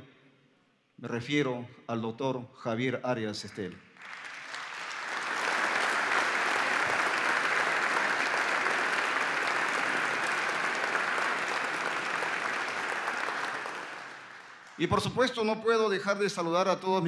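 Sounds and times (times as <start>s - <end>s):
audience clapping: 3.4s - 15.5s.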